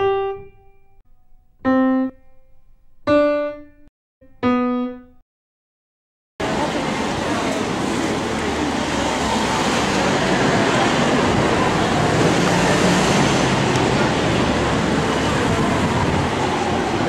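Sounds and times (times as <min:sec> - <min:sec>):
traffic noise: 0:06.4 - 0:17.0.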